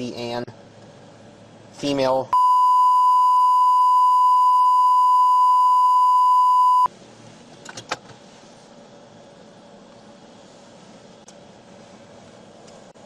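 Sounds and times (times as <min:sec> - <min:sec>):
high-pitched censor bleep: 0:02.4 - 0:06.9.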